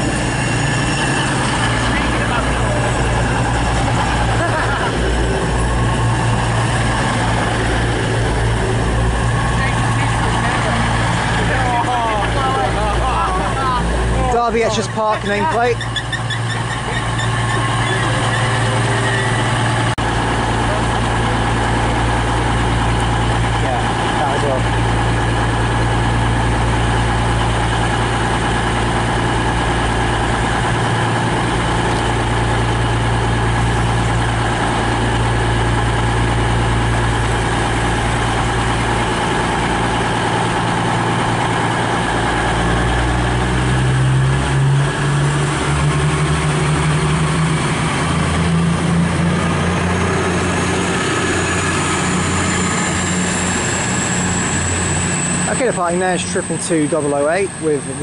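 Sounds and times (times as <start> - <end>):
train diesel engines running: 0.0 - 58.0.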